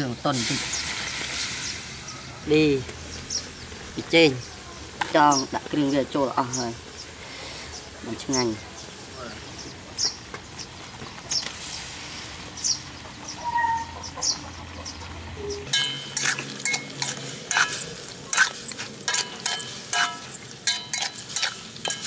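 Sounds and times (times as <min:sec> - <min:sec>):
metal ladle clinking in wok: 0:15.7 - 0:22.0.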